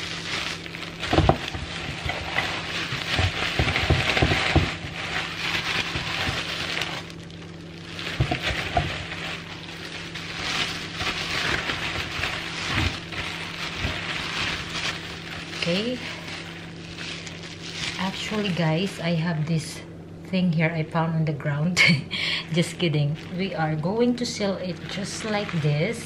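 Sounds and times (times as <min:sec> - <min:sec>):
plastic bag crinkling: 0:00.0 - 0:19.7, 0:22.4 - 0:26.0
bag thumping against dish: 0:01.0 - 0:06.9.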